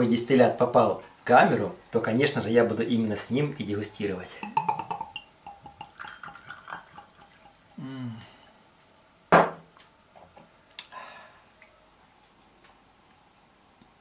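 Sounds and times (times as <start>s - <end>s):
glass bottle knocking on counter: 4.4s - 5.1s, 9.3s - 9.6s
liquid trickling into a glass: 4.4s - 7.8s.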